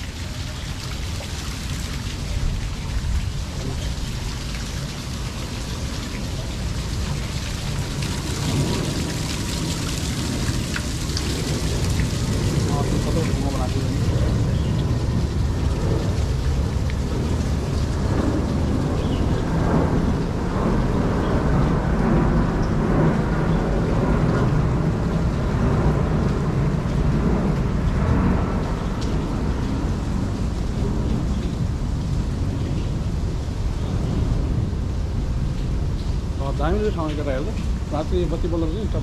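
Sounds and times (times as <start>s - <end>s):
waterfall rushing: 0.0s - 15.1s
wind buffeting microphone: 0.0s - 39.0s.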